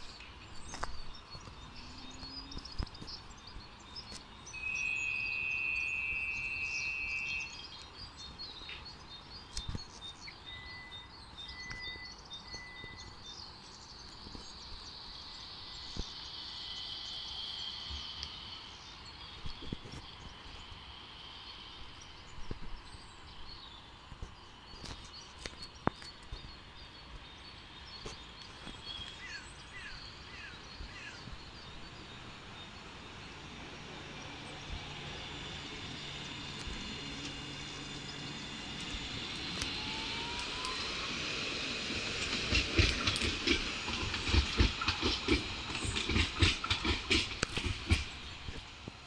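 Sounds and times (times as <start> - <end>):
tram motor hum and whine: 0.0 - 49.0
tram wheels clattering over rail joints: 25.7 - 49.0.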